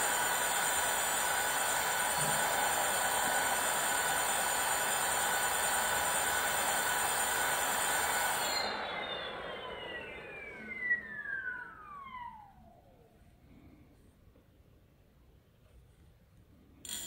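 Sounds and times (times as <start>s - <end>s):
electric hub motor whine: 0.0s - 13.6s.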